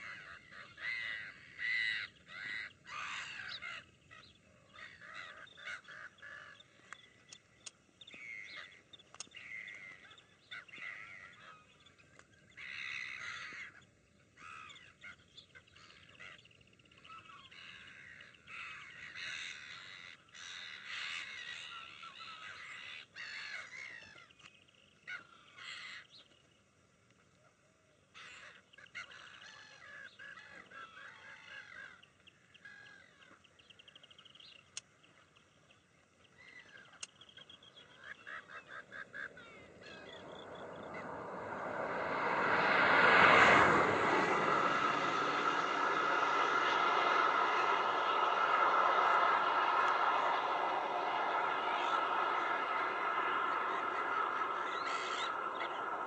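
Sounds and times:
gulls calling: 0:36.5 - 0:56.0.

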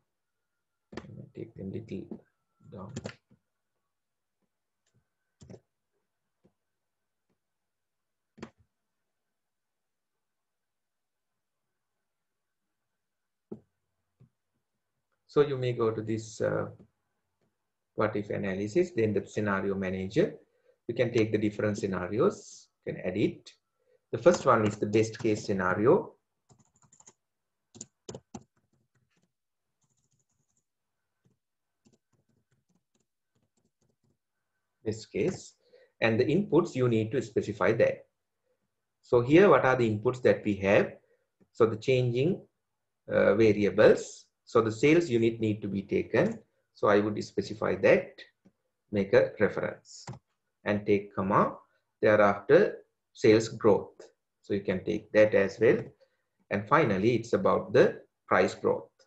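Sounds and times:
keyboard keys typing: 0:24.3 - 0:25.6, 0:26.5 - 0:34.2.

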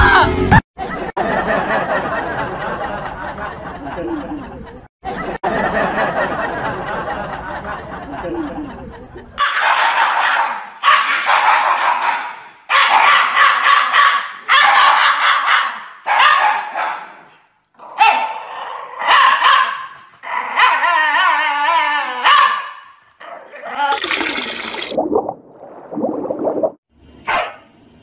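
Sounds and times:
dog howling barks: 0:20.4 - 0:22.8.

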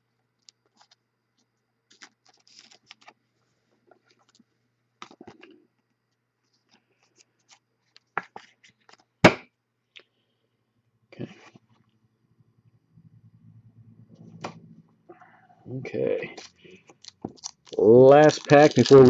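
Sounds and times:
cards and plastic clicks and crinkles: 0:00.3 - 0:09.4, 0:16.0 - 0:19.0.

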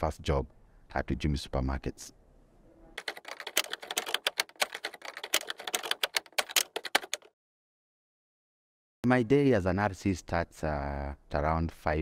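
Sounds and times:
typewriter keystrokes: 0:03.0 - 0:07.3.

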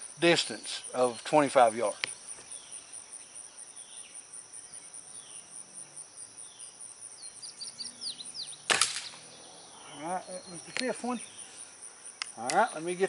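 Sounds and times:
insect pulsing trill: 0:00.0 - 0:13.0
high falling chirps: 0:06.4 - 0:13.0.

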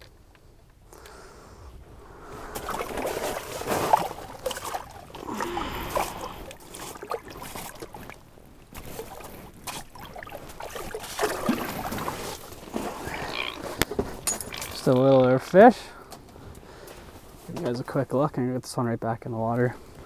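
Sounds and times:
water splashing and sloshing: 0:02.0 - 0:17.8.

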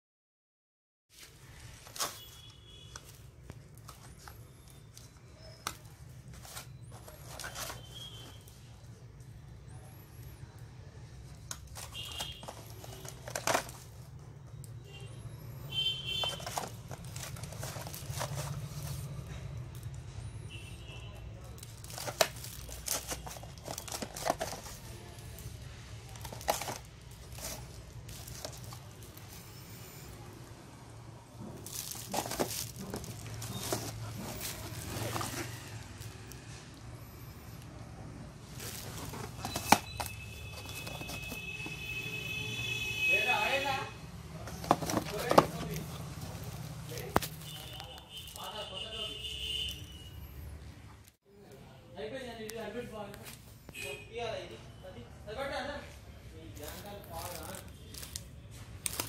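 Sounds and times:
cardboard boxes crinkling and tapping: 0:05.6 - 0:08.0, 0:11.4 - 0:14.0, 0:16.2 - 0:19.0, 0:21.6 - 0:25.0, 0:26.1 - 0:29.3, 0:31.6 - 0:35.7, 0:38.6 - 0:41.9, 0:44.4 - 0:48.0
cardboard boxes knocking: 0:44.5 - 0:45.8.

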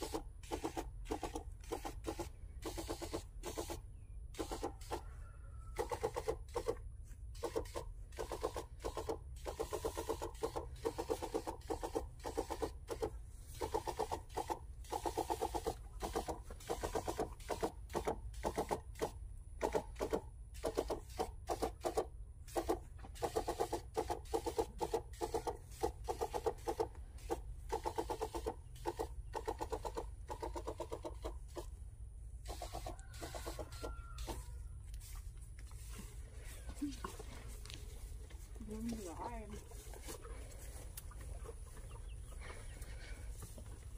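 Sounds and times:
sprayer pump clicks and creaks: 0:00.0 - 0:05.0, 0:05.8 - 0:31.8, 0:32.5 - 0:36.2.

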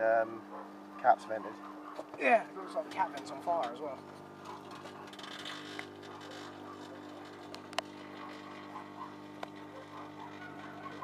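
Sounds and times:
microwave oven humming: 0:00.0 - 0:11.0
sharp electrical crackles: 0:04.4 - 0:11.0.

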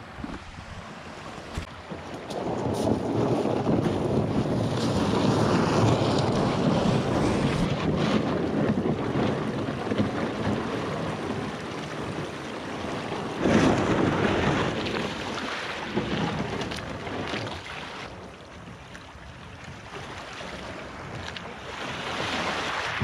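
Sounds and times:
wind buffeting microphone: 0:00.0 - 0:23.0
boat hull scraping over pebbles: 0:02.3 - 0:10.6.

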